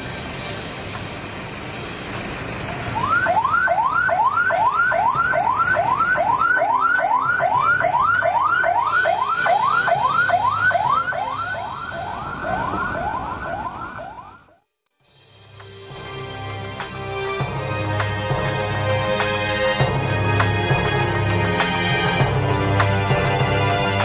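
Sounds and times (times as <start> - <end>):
ambulance siren yelping: 2.9 - 14.6.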